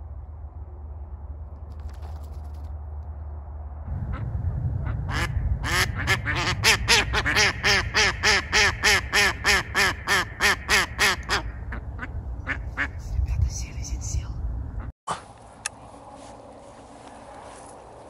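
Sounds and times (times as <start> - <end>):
low wind rumble: 0.0 - 18.0
duck quacking: 4.8 - 13.0.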